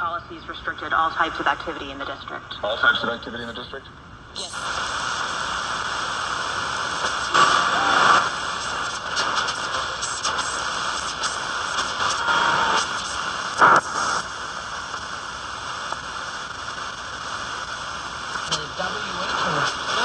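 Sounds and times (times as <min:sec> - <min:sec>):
radio static and hiss: 0:00.0 - 0:20.0
brief radio tones and signals: 0:03.4 - 0:04.8.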